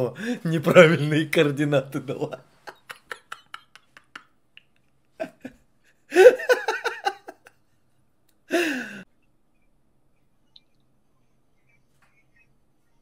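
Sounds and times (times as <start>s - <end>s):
man laughing: 2.1s - 4.3s, 5.1s - 7.6s
short breaths: 8.5s - 9.1s.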